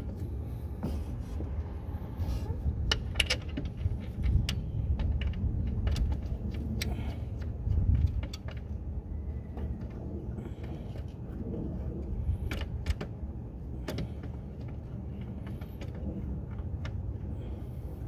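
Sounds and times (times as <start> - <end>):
low rumble: 0.0 - 18.0
metallic clicks and knocks: 2.8 - 8.7.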